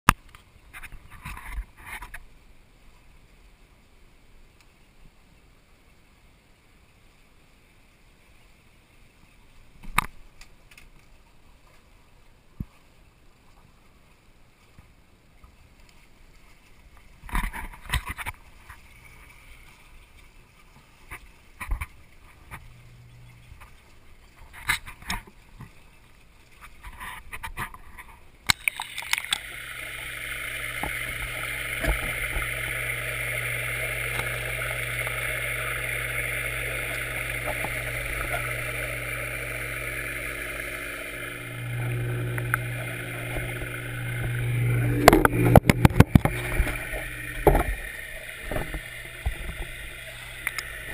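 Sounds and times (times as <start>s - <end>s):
low pump hum: 18.6s - 24.4s, 28.5s - 50.9s
underwater rush of water: 28.5s - 50.9s.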